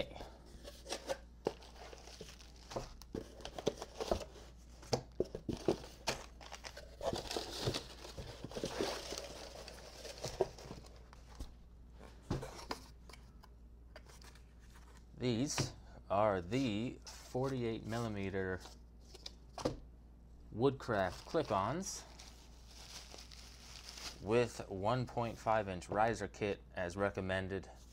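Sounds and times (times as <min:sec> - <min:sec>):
bubble wrap and paper crinkling: 0:00.8 - 0:11.5, 0:20.8 - 0:24.3.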